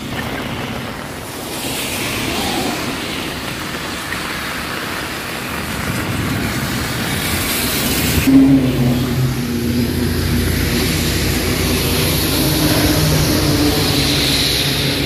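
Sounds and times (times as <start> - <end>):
steady rain falling: 0.0 - 15.0
wind buffeting microphone: 5.0 - 15.0.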